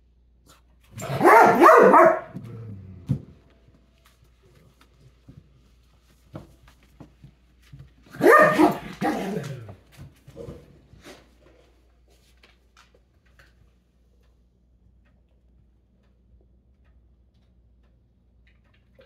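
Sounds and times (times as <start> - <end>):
dog barking deeply: 1.0 - 2.6, 8.1 - 9.6.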